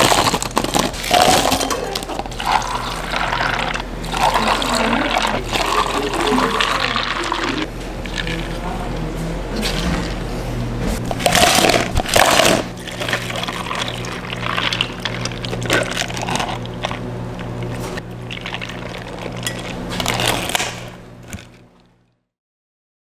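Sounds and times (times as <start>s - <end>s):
ice clattering into plastic cup: 0.0s - 7.4s, 11.2s - 17.0s
steady low hum: 0.0s - 22.2s.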